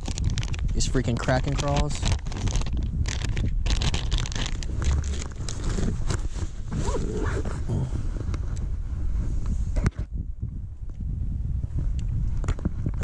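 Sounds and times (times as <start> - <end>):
plastic bag crinkling: 0.0 - 7.2
wind rumble on microphone: 0.0 - 13.0.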